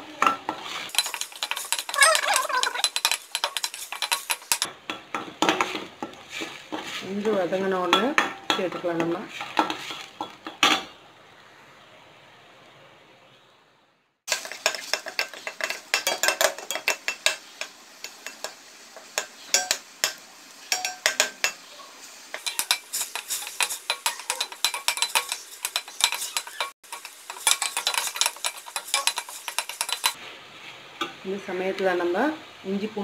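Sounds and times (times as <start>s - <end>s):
metal spoon scraping a pan: 0.2s - 10.9s, 14.3s - 21.7s, 22.3s - 30.2s.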